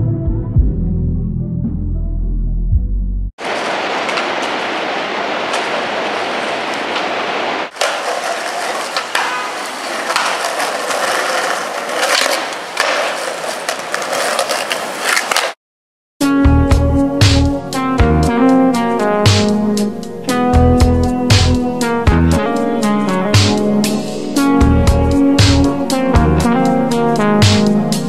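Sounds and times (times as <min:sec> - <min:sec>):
skateboard wheels rolling on concrete: 0:03.4 - 0:15.6, 0:20.6 - 0:28.0
skateboard clacking on landing: 0:07.7 - 0:15.6.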